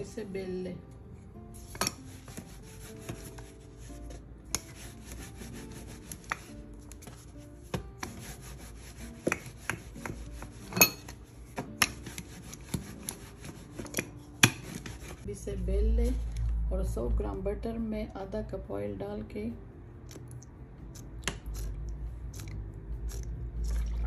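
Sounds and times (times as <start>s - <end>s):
rolling pin rolling dough: 1.5s - 15.3s.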